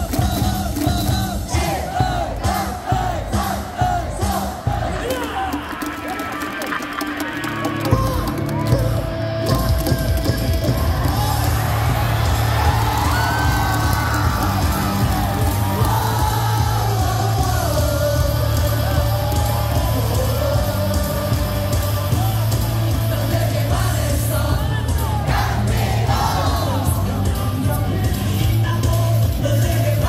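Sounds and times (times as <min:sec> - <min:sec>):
crowd singing: 0:00.0 - 0:30.0
people yelling: 0:04.3 - 0:09.0, 0:10.6 - 0:22.9
amplified music with bass: 0:06.8 - 0:30.0.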